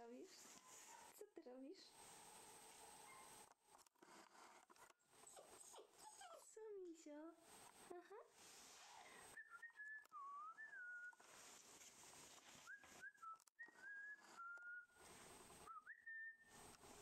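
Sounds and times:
puppy whining: 3.1s - 6.6s.

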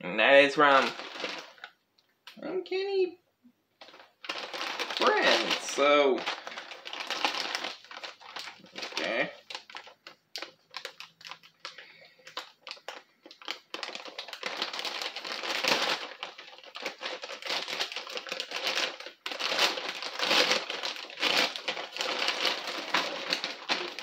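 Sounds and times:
packaging crinkling and rustling: 0.6s - 1.8s, 3.8s - 24.0s.

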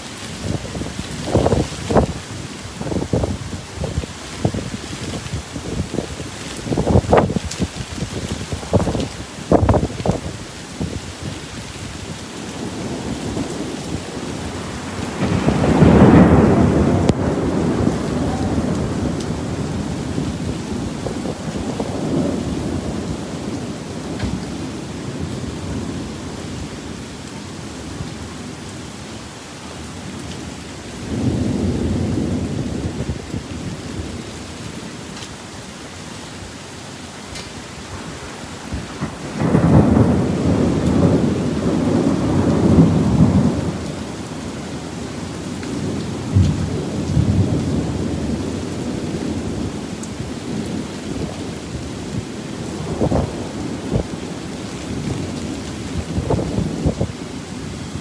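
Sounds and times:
steady rain: 0.0s - 58.0s
rolling thunder: 0.3s - 26.9s, 31.0s - 34.4s, 37.8s - 58.0s
thunder cracks: 12.6s - 24.7s, 37.9s - 43.9s, 52.7s - 54.2s.

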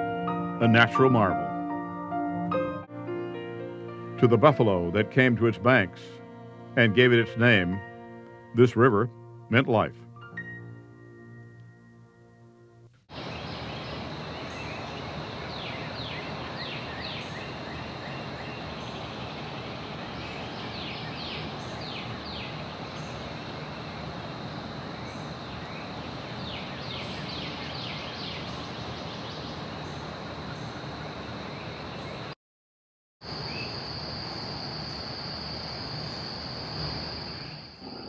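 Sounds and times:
high insect drone: 13.1s - 32.3s, 33.2s - 38.0s
bird chirping: 13.2s - 24.0s, 24.9s - 30.9s.

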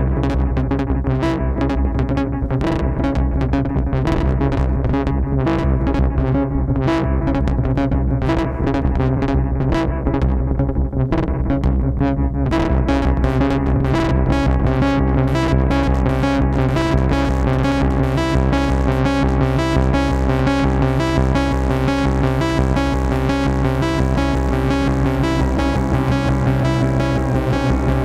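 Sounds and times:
synthesizer chord harmonies: 12.8s - 28.0s.

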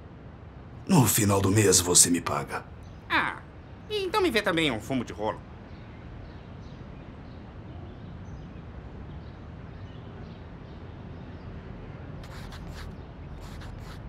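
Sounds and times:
faint bird chirps: 12.2s - 14.0s
pen scratching on paper: 12.2s - 14.0s.

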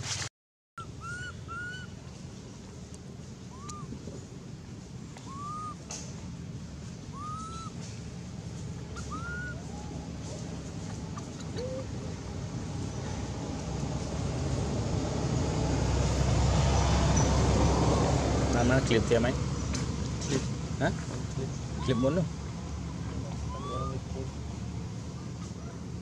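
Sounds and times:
short animal calls: 3.5s - 3.9s, 5.2s - 5.8s, 7.1s - 7.8s, 9.0s - 9.8s, 21.7s - 22.3s, 23.4s - 24.0s.

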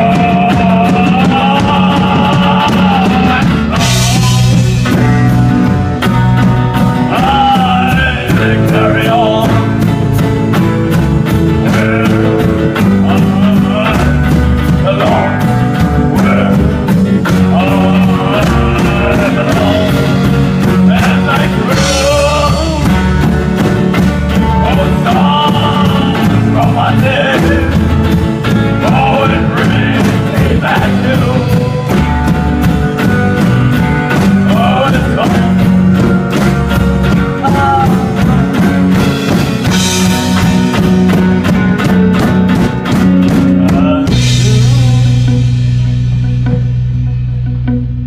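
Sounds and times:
man singing: 0.0s - 41.1s, 43.2s - 45.8s
bass guitar: 0.0s - 48.0s
drums: 0.0s - 48.0s
electric guitars: 0.0s - 48.0s.

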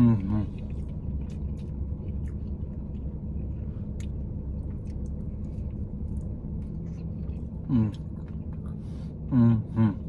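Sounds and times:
person chewing food: 0.0s - 9.3s
steady low hum: 0.0s - 10.0s.

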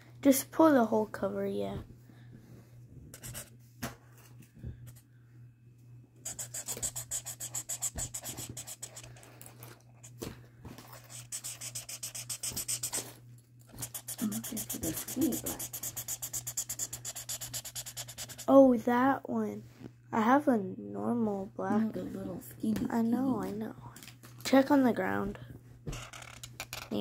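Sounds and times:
marker scribbling on paper: 6.2s - 9.2s, 11.0s - 13.1s, 13.7s - 18.5s.

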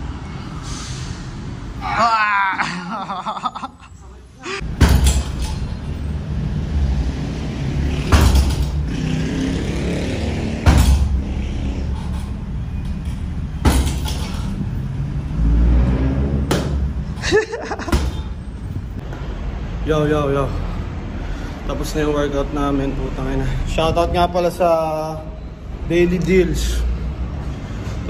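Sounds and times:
punches thudding on punching bag: 4.7s - 5.5s, 8.0s - 8.8s, 10.5s - 11.2s, 13.6s - 14.3s, 16.5s - 16.8s, 17.8s - 18.3s.

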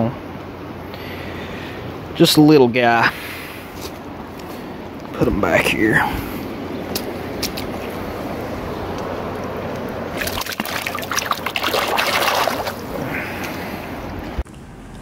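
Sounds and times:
river water running over rocks: 6.9s - 14.2s
hand splashing in water: 10.2s - 13.6s.

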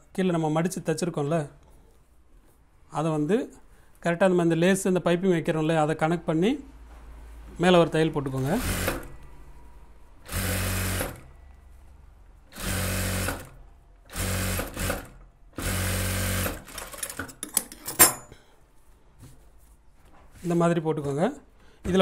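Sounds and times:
sewing machine running: 8.4s - 9.2s, 10.2s - 11.3s, 12.5s - 17.3s
fabric rustling: 18.6s - 20.7s.

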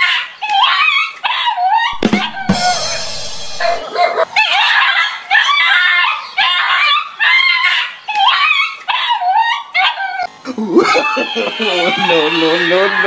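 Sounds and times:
animal shrieking: 0.6s - 10.3s, 11.0s - 13.0s.

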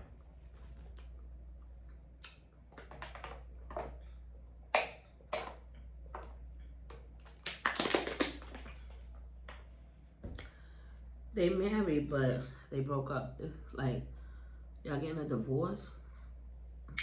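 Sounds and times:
plastic bottle crackling: 6.2s - 9.6s.

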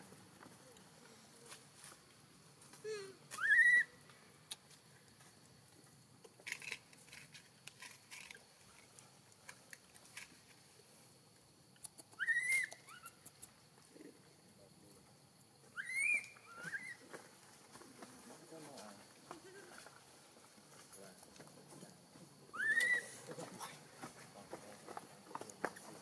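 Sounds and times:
baby monkey crying: 3.4s - 3.9s, 12.2s - 13.2s, 15.8s - 17.0s, 22.5s - 23.1s.

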